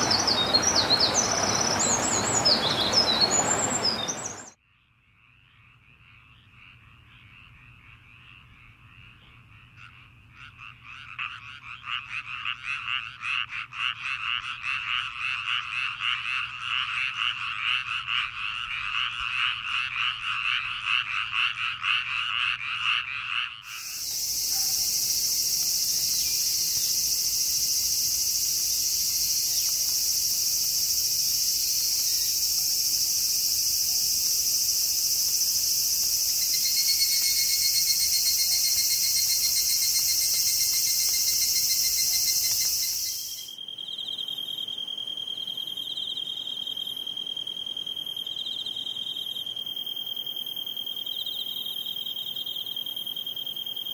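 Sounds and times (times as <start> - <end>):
cicadas chorus: 0.0 - 4.6, 6.3 - 53.9
frogs calling in rapid pulses: 0.0 - 4.6, 5.2 - 53.9
insects chirping in a high trill: 0.0 - 4.6, 23.6 - 53.9.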